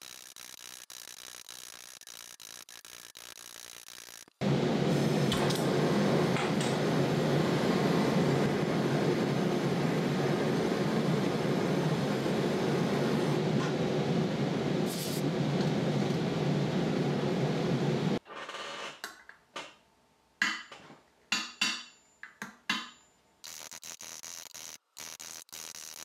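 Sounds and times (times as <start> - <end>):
high hiss: 4.4 - 15.3
gas torch flame roaring: 4.4 - 18.2.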